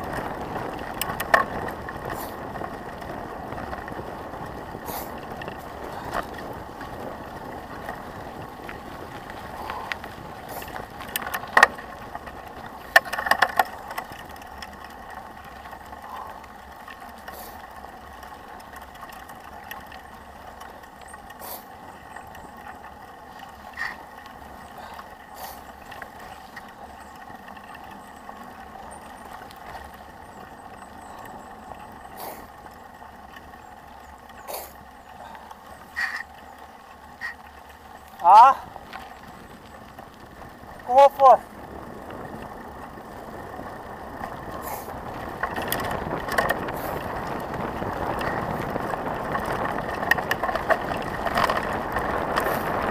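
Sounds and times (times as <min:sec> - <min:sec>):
bike rattling and knocking: 0:00.0 - 0:52.9
bike tyres rolling on gravel: 0:00.0 - 0:52.9.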